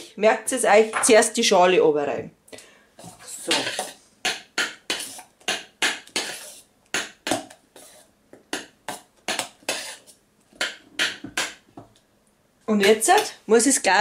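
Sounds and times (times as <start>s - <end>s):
metal utensil scraping steel pot: 3.0s - 6.6s, 7.8s - 8.1s, 8.9s - 11.6s.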